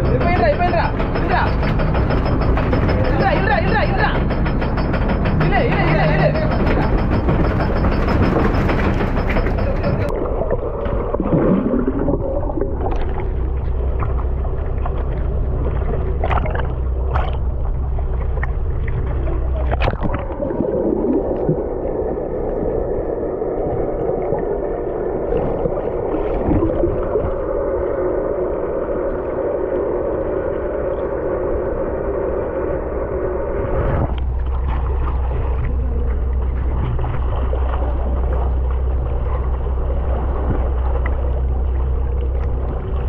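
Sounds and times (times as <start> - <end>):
clicks and knocks: 0.0 - 10.1
low gliding tones: 0.0 - 43.0
steady low hum: 0.0 - 43.0
water rushing and gurgling: 0.0 - 43.0.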